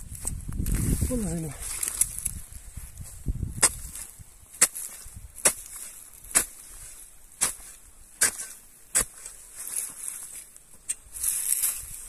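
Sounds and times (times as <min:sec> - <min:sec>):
spade chopping into soil: 0:03.6 - 0:10.1.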